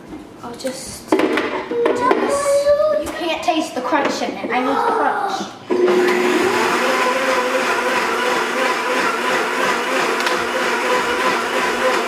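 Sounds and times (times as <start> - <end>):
blender motor whine: 5.7 - 12.0.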